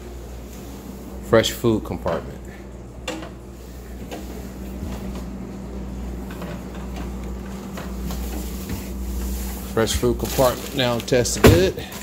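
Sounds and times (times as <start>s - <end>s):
refrigerator hum: 0.0s - 12.0s
refrigerator door opening: 9.2s - 12.0s.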